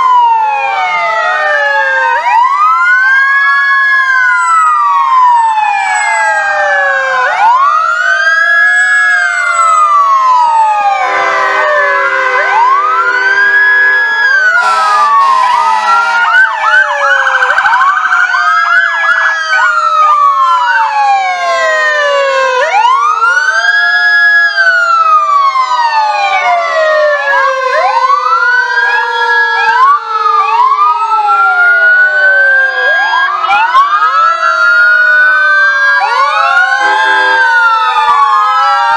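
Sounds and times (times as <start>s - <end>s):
emergency sirens wailing: 0.0s - 38.9s
fast warbling siren yelp: 0.0s - 38.9s
steady horn chord: 14.6s - 15.3s.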